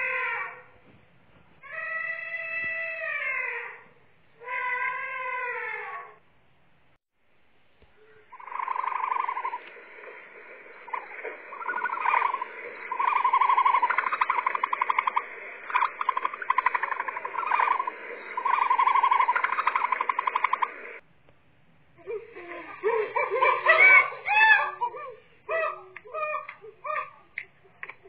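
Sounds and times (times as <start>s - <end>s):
steady background hiss: 5.5s - 28.0s
animal buzzing trills: 8.3s - 21.0s.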